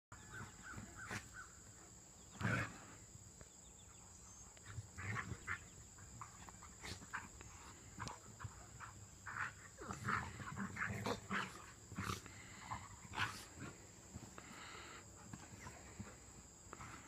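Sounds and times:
dogs play growling and grunting: 0:00.2 - 0:17.0.

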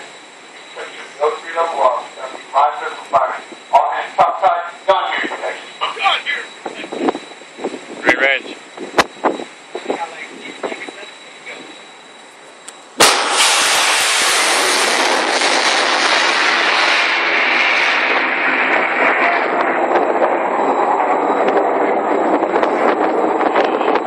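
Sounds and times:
missile launch blast: 0:13.0 - 0:24.0
rocket motor rushing: 0:13.0 - 0:24.0.

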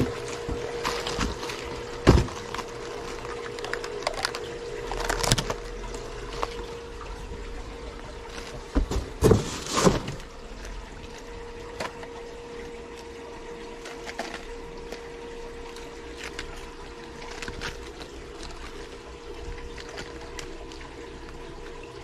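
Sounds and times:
plastic rustling and knocks: 0:00.0 - 0:06.7, 0:08.3 - 0:10.8
constant hum: 0:00.0 - 0:22.0
water trickling: 0:00.0 - 0:22.0.

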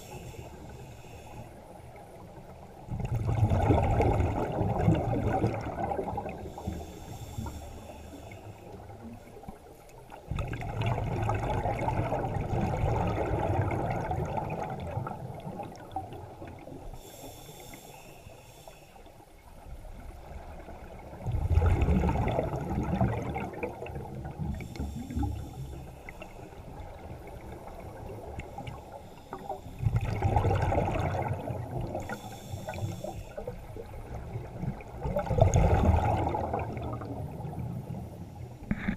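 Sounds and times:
scuba regulator breathing underwater: 0:00.0 - 0:01.6, 0:06.2 - 0:09.0, 0:16.9 - 0:19.1, 0:24.5 - 0:26.5, 0:31.8 - 0:33.6
exhaled bubbles rushing: 0:02.9 - 0:06.7, 0:10.3 - 0:16.4, 0:20.6 - 0:24.7, 0:29.8 - 0:32.1, 0:33.8 - 0:37.8.

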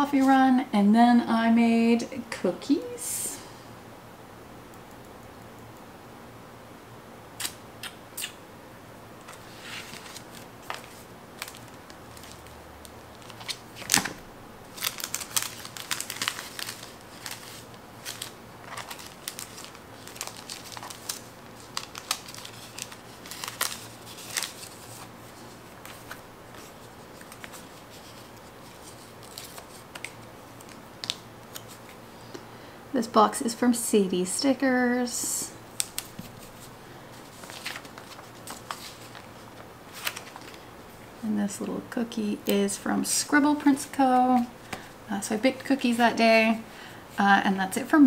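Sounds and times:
paper crinkling and rustling: 0:09.3 - 0:32.0, 0:35.7 - 0:40.7.

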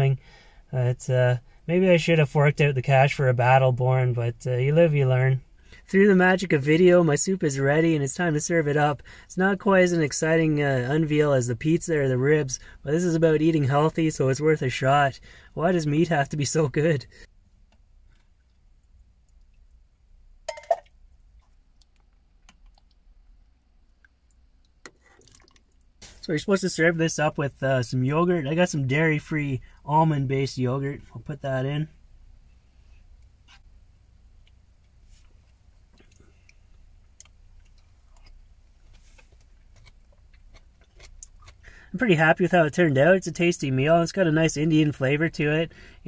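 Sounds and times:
low steady hum: 0:00.0 - 0:46.0
person chewing: 0:23.9 - 0:25.9, 0:37.2 - 0:41.6.

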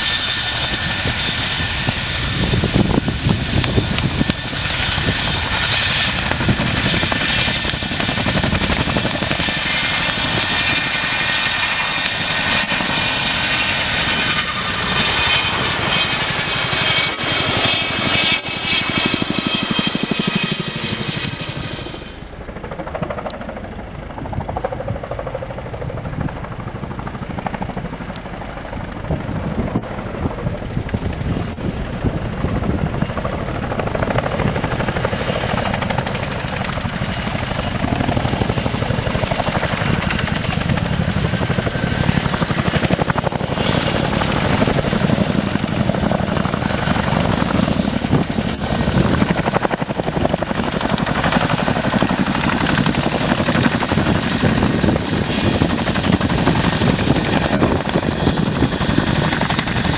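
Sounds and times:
helicopter engines whining: 0:00.0 - 0:59.9
helicopter rotor noise: 0:00.0 - 0:59.9.

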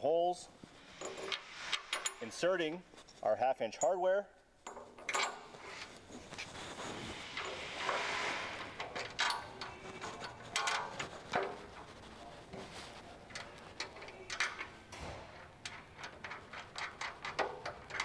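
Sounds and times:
metal bolts clicking and clinking: 0:00.9 - 0:02.7, 0:03.7 - 0:05.8, 0:07.3 - 0:11.9, 0:13.3 - 0:18.0.

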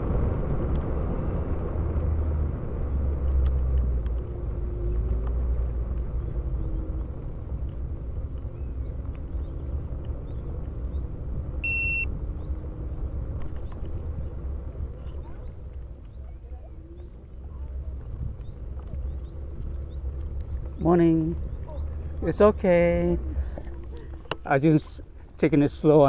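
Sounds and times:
wind and tyre noise: 0:00.0 - 0:26.0
short high electronic beep: 0:11.6 - 0:12.1.

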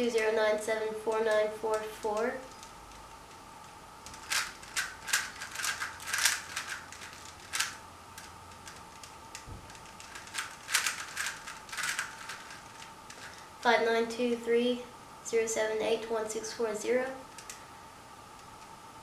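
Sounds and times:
plastic puzzle cube clicking: 0:04.0 - 0:13.4, 0:17.3 - 0:17.6.

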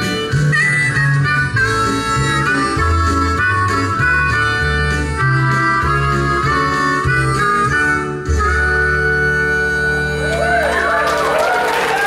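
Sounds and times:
audience applause and cheering: 0:10.1 - 0:12.0.

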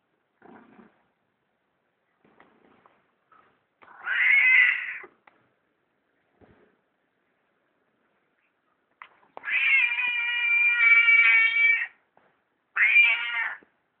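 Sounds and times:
cat meowing: 0:03.8 - 0:05.1, 0:09.4 - 0:12.0, 0:12.8 - 0:13.6.

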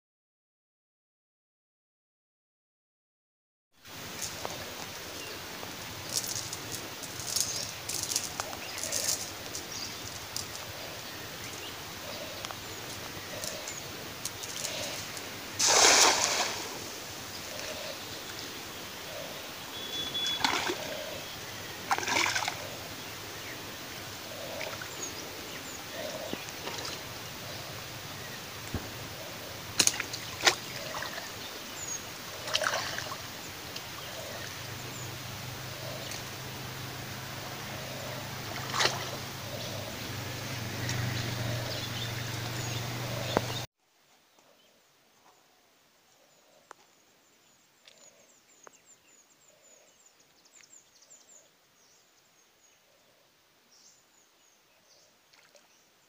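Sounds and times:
steady outdoor hiss: 0:03.8 - 0:56.0
person wading in water: 0:04.0 - 0:43.6
net splashing in water: 0:15.6 - 0:16.9, 0:20.2 - 0:20.9, 0:21.9 - 0:22.6, 0:38.5 - 0:39.2.

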